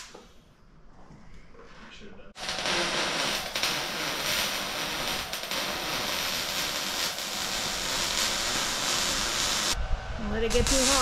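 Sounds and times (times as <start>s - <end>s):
welding arc hissing: 2.4s - 11.0s.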